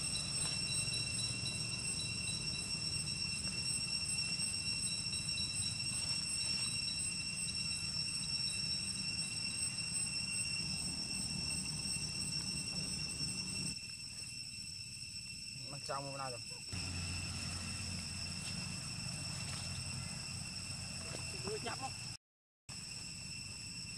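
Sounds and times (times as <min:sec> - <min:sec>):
cicadas droning: 0:00.0 - 0:23.9
low steady rumble: 0:16.8 - 0:22.0.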